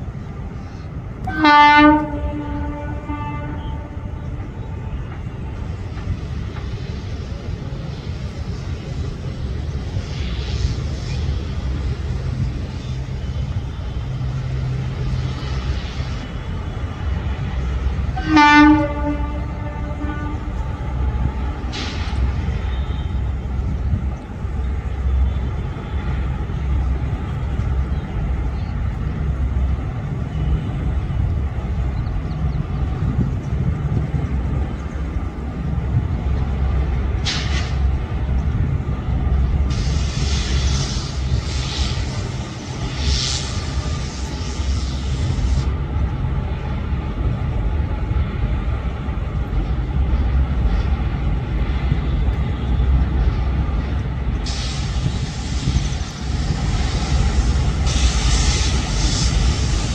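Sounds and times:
train rumbling over bridge: 0:00.0 - 0:59.9
locomotive horn: 0:01.2 - 0:04.5, 0:18.1 - 0:21.8, 0:22.4 - 0:23.5
short hiss: 0:21.0 - 0:23.3, 0:37.1 - 0:38.0, 0:39.6 - 0:45.7, 0:54.4 - 0:59.9.

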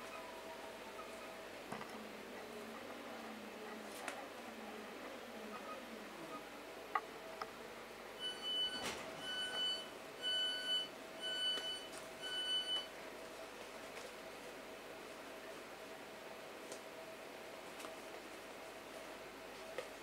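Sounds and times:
high warning beeps: 0:08.2 - 0:12.9.

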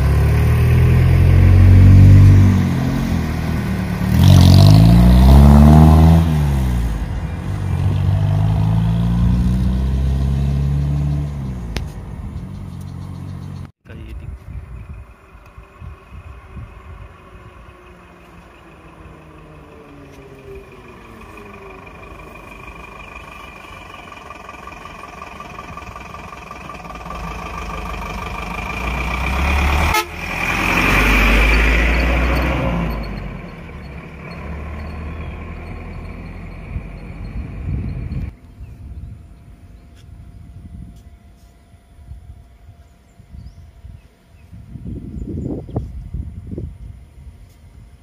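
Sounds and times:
lorry engine running: 0:14.6 - 0:47.4
steady high whine: 0:32.8 - 0:48.0.

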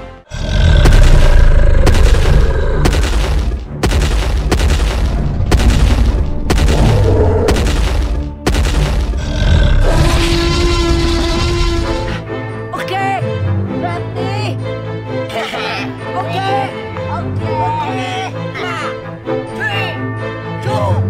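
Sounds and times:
heavy booms: 0:00.7 - 0:09.1.

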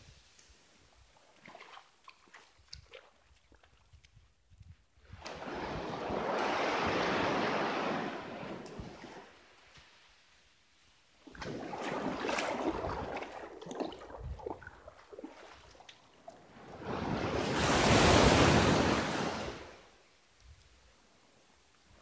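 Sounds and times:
rough surf rushing: 0:05.2 - 0:09.4, 0:16.6 - 0:19.9
wave breaking on beach: 0:05.2 - 0:09.5, 0:16.4 - 0:19.9
wind on microphone: 0:12.6 - 0:14.9, 0:16.6 - 0:19.8.

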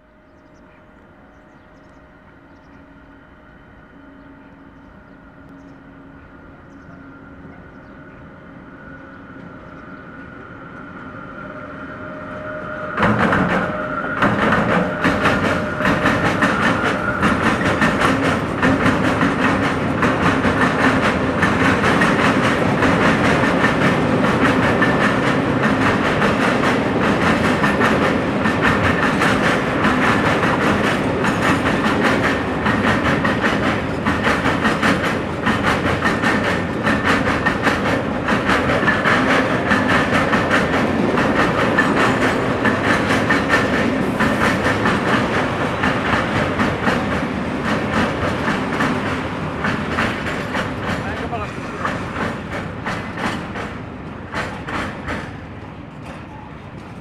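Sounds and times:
electric locomotive whine: 0:00.0 - 0:57.0
train wagons rumbling: 0:00.0 - 0:57.0
rapid clicking of train wheels: 0:12.4 - 0:57.0.

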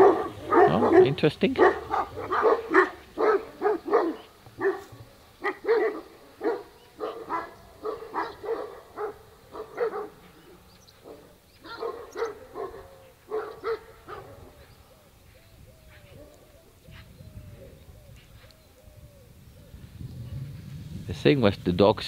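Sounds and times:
dogs barking: 0:00.0 - 0:15.1.

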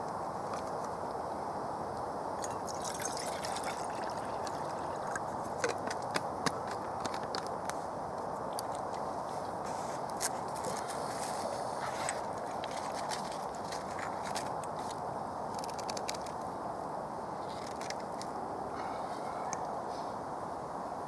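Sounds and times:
water pouring into metal mug: 0:02.4 - 0:05.3.

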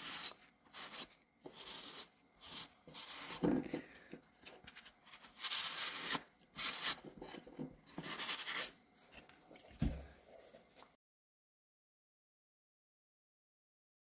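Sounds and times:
sponge scrubbing ceramic: 0:00.0 - 0:03.7, 0:04.3 - 0:08.8.

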